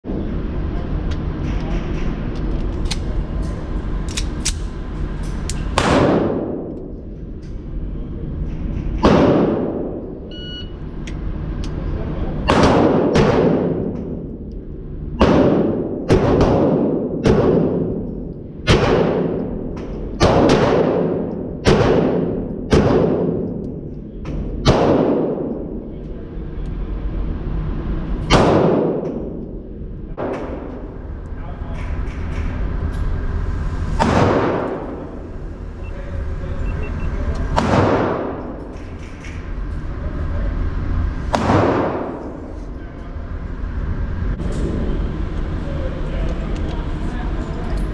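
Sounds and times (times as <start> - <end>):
gun handling clicks: 4.1 - 4.7
pistol shots echoing indoors: 5.7 - 6.9, 9.0 - 10.2, 12.4 - 14.6, 15.2 - 25.8, 28.2 - 30.9, 34.0 - 35.2, 37.6 - 38.9, 41.3 - 42.4.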